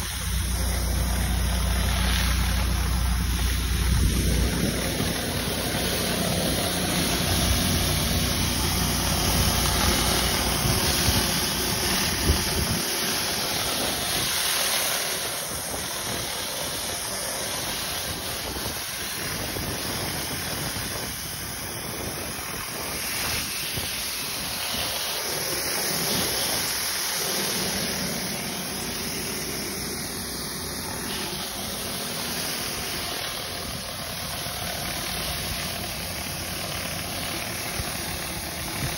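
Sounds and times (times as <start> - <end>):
low rumble: 0.0 - 12.8
hiss of high-pressure water: 0.0 - 38.9.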